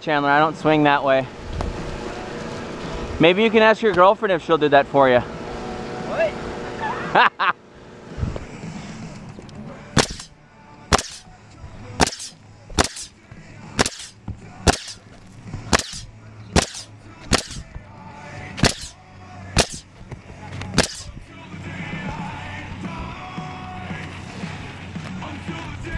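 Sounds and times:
nail gun firing sharp cracks: 0:10.0 - 0:10.3, 0:10.9 - 0:11.3, 0:12.0 - 0:13.2, 0:13.8 - 0:15.1, 0:15.7 - 0:17.7, 0:18.6 - 0:19.0, 0:19.6 - 0:19.9, 0:20.8 - 0:21.1.

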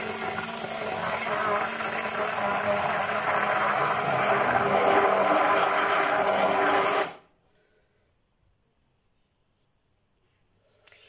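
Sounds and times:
immersion blender running: 0:00.0 - 0:07.3.

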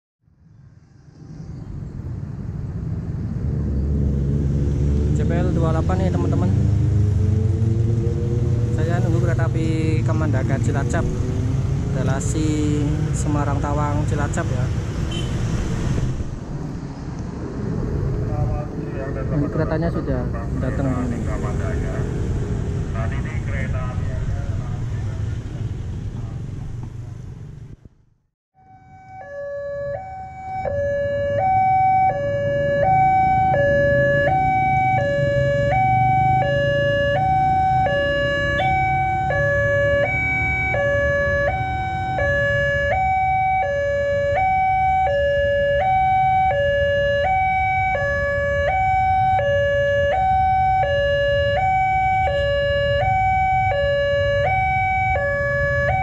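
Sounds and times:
two-tone electronic warning siren: 0:28.6 - 0:56.0.

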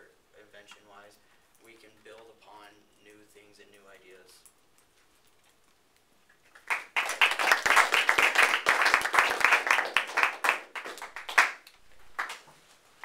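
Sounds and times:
people applauding: 0:06.5 - 0:12.5.

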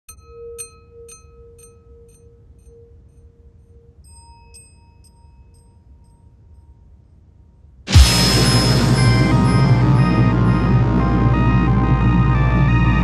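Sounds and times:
soft ticking chimes: 0:00.1 - 0:07.8
held tone: 0:07.9 - 0:11.4.

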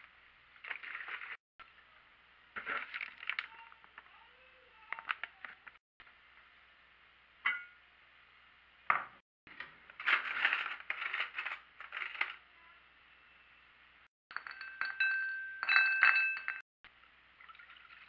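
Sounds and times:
crockery and cutlery clinking: 0:14.3 - 0:16.6.

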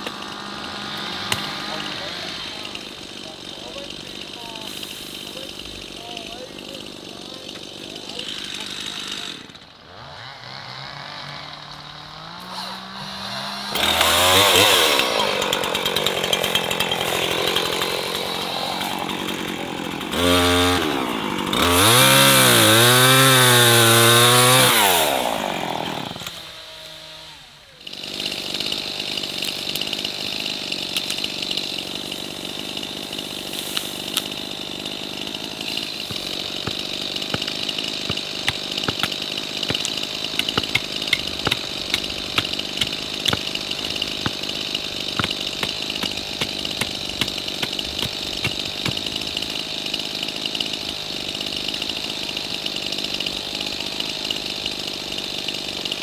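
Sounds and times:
chainsaw revving: 0:00.0 - 0:56.0
wood and twigs crackling: 0:33.2 - 0:49.7.

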